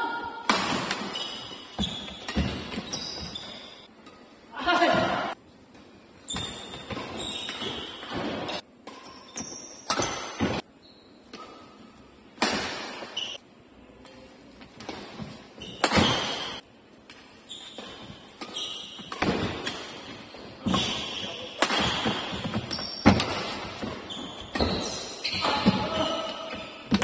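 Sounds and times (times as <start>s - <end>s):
racket hitting shuttlecock: 0.1s - 4.2s, 6.4s - 10.6s, 11.3s - 13.2s, 14.7s - 27.0s
shoes squeaking on floor: 1.0s - 3.9s, 6.2s - 12.0s, 13.0s - 13.4s, 14.1s - 16.6s, 17.3s - 27.0s.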